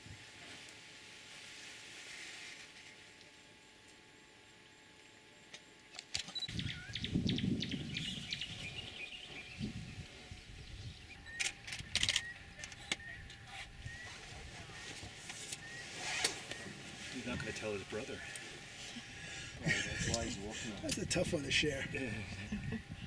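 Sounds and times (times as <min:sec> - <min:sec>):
birds chirping: 0:06.3 - 0:23.0
sharp clicks: 0:11.3 - 0:13.0.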